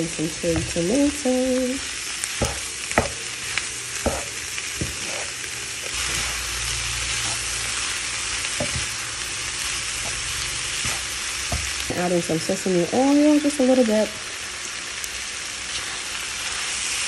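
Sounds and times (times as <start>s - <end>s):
meat and vegetables sizzling in a pan: 0.0s - 17.0s
wooden spatula knocking against pan: 2.4s - 3.2s, 4.0s - 5.0s.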